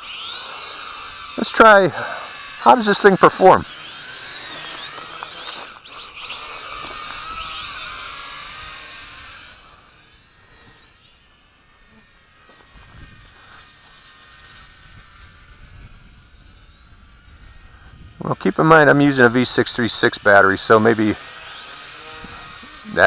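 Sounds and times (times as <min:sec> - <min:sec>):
drone propellers whining: 0:00.0 - 0:23.0
wind rumble on microphone: 0:14.5 - 0:18.2.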